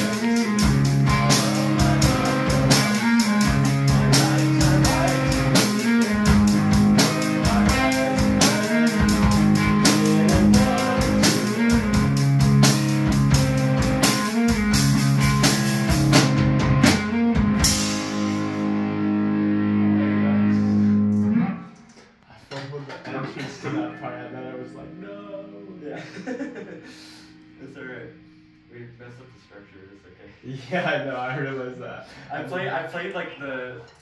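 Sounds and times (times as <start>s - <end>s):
drum kit with cymbals: 0.0s - 18.9s
electric guitar: 0.0s - 22.0s.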